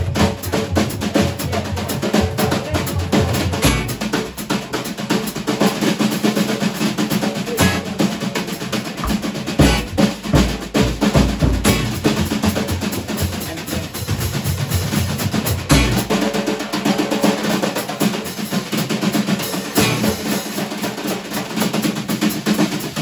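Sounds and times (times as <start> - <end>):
snare drum playing: 1.9 - 23.0
bass drum hits: 3.6 - 4.1, 9.0 - 12.1, 15.7 - 16.2.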